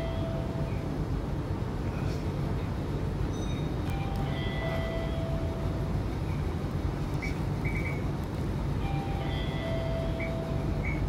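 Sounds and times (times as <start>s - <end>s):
tram interior rumble: 0.0s - 11.0s.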